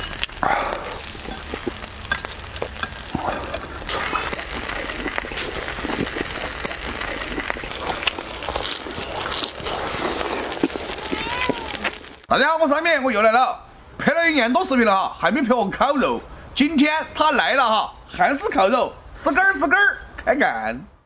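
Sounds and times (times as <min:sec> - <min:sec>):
pork sizzling on griddle: 0:00.0 - 0:12.3.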